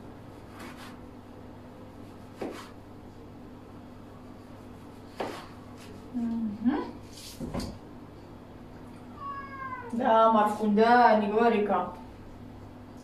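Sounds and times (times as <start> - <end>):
low steady hum: 0.0 - 13.0
knife slicing tomato: 0.4 - 1.1, 2.0 - 2.8, 4.6 - 6.0.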